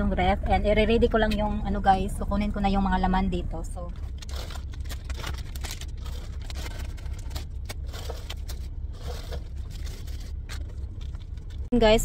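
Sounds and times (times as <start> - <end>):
steady low rumble: 0.0 - 12.0
plastic bags rustling: 4.0 - 11.7
scrapes and light knocks: 6.1 - 11.6.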